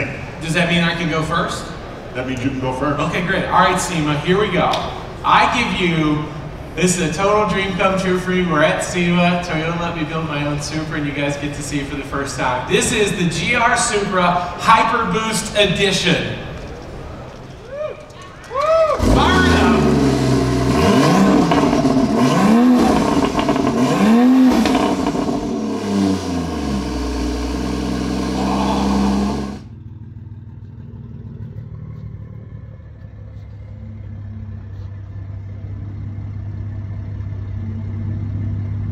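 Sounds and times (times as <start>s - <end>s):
car engine revving: 18.9s - 38.9s.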